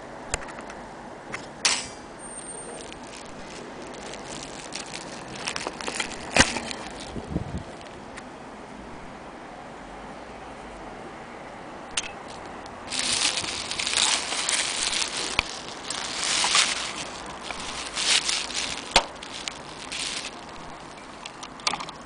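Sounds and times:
bubble wrap crinkling: 2.3s - 8.0s, 12.2s - 22.0s.

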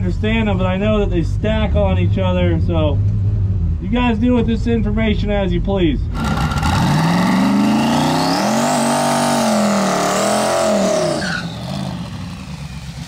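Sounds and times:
car engine revving hard: 6.1s - 12.6s
gear changes banging: 6.1s - 13.0s.

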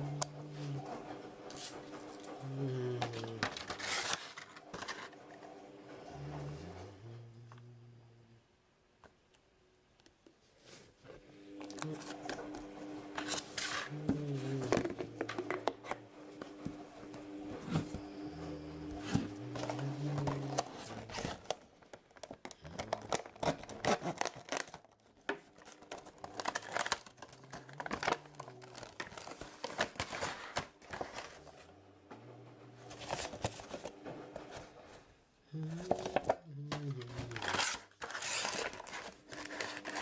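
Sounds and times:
plastic packaging crinkling: 2.9s - 5.1s, 19.4s - 31.5s, 37.0s - 40.0s.

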